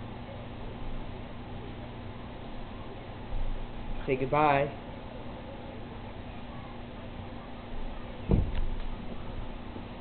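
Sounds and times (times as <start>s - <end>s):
dull thump: 8.3s - 8.8s.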